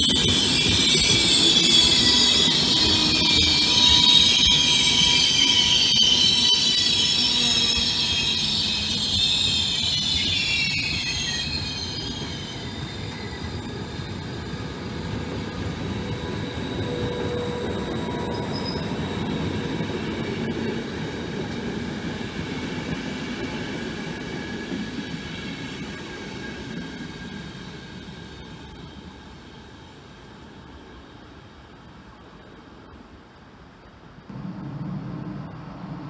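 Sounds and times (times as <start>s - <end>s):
metallic wheel squeal: 0.0s - 13.8s, 16.4s - 19.4s
train rolling rumble: 0.0s - 36.0s.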